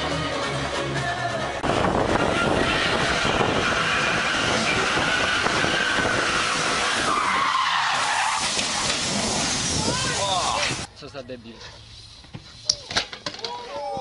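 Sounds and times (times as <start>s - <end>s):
car engine revving: 1.6s - 9.7s
tyres squealing on asphalt: 1.6s - 10.9s.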